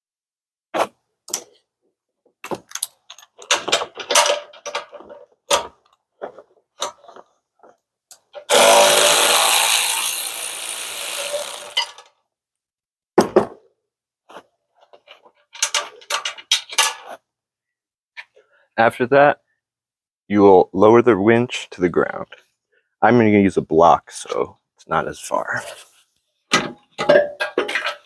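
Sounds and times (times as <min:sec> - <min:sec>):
metal tools clinking and knocking: 0:02.4 - 0:06.0, 0:15.4 - 0:17.2, 0:26.6 - 0:28.0
cordless power ratchet spinning: 0:08.5 - 0:12.0.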